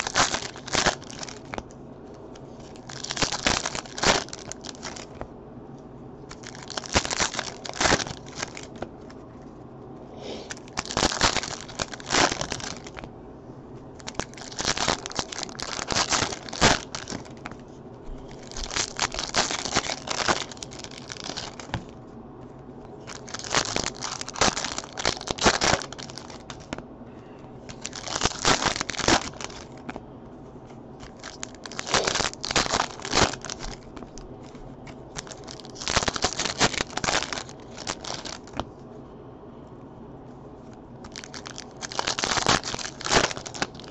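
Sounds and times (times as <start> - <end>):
foil wrappers tearing and crinkling: 0.0 - 1.7, 2.6 - 5.2, 6.3 - 8.9, 10.4 - 13.1, 14.0 - 17.6, 18.3 - 21.9, 23.0 - 26.8, 27.7 - 30.0, 31.0 - 38.6, 41.0 - 43.9.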